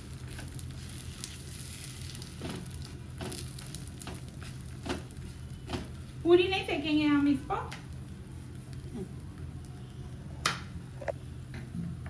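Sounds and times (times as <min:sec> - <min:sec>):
flatbread sizzling on a pan: 0:00.0 - 0:06.3
steady low hum: 0:00.0 - 0:12.0.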